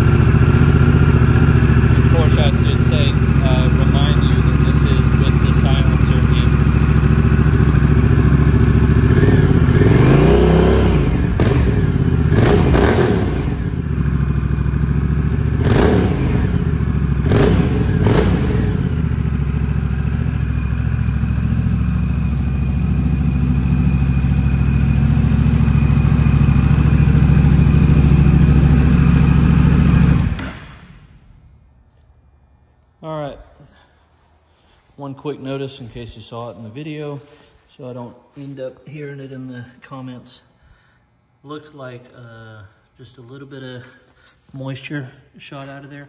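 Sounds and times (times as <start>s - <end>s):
motorcycle engine idling: 0.0s - 34.9s
motorcycle engine throttle blips: 0.0s - 45.9s.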